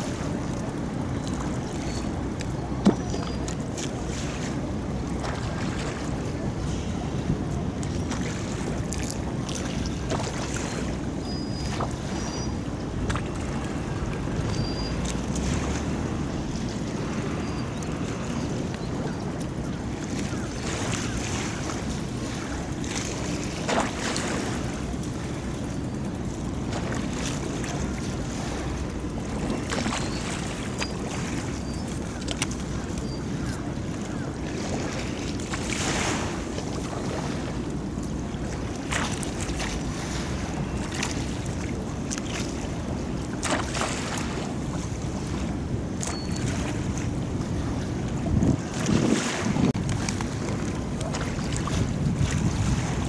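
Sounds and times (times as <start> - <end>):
low rush of water: 0.0 - 53.0
waves lapping: 0.0 - 53.0
wind: 0.0 - 53.0
short water splash: 20.6 - 24.8, 34.5 - 37.5, 43.3 - 44.6, 48.3 - 53.0.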